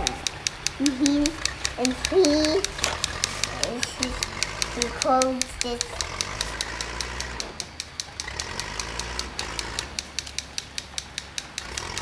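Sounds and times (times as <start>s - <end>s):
low motor hum: 0.0s - 12.0s
toy helicopter rotor clicking: 0.0s - 12.0s.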